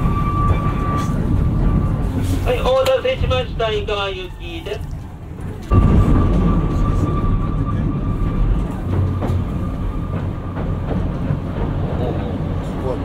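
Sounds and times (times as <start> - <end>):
train wheels rumbling on rail: 0.0 - 13.0
rail-joint clicks: 0.5 - 3.7, 7.8 - 13.0.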